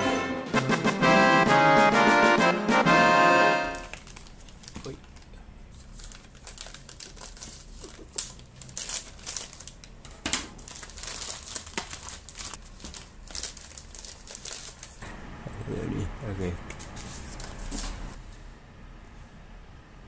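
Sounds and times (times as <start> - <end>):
plastic mailer bag crinkling: 3.7 - 15.0.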